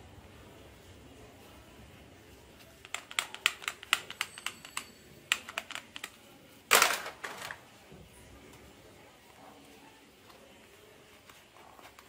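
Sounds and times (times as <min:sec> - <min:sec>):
plastic toy guns clicking: 0:02.8 - 0:07.6
toy guns clattering: 0:02.8 - 0:07.6.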